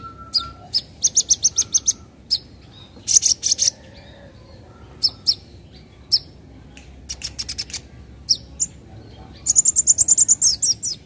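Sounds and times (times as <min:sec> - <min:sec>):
bird chirping: 0:00.0 - 0:11.0.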